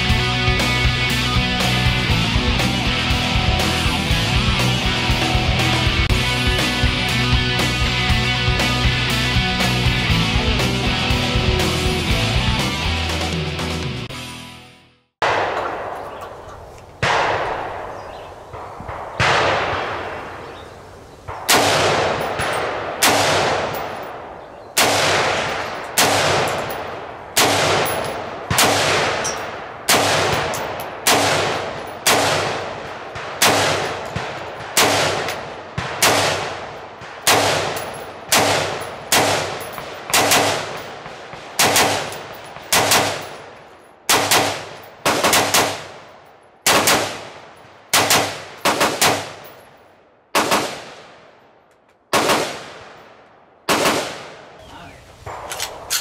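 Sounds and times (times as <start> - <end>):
echoing gunshots: 15.2 - 54.6, 55.2 - 56.0.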